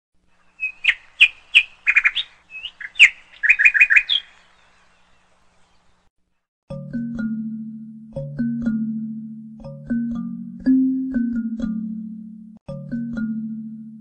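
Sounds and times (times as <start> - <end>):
bird chirping and trilling: 0.3 - 6.1.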